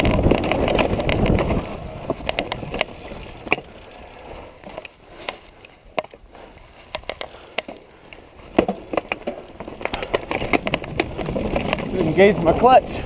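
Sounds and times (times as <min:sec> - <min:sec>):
bike tyres rattling over rocks: 0:00.0 - 0:13.0.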